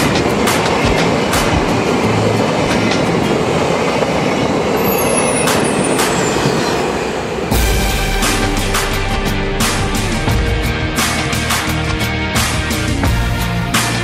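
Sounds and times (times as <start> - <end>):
wheels clicking over rail joints: 0.0 - 6.2
music: 0.0 - 14.0
train wheels rumbling on rails: 0.0 - 14.0.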